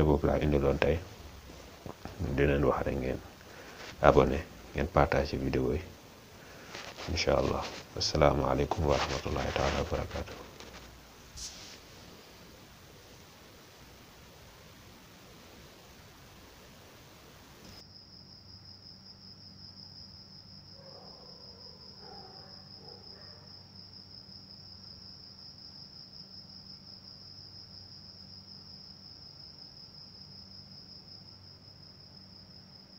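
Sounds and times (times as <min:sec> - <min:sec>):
faint low hum: 0:00.0 - 0:32.9
hiss: 0:08.8 - 0:17.8
high-pitched insect trill: 0:17.3 - 0:32.9.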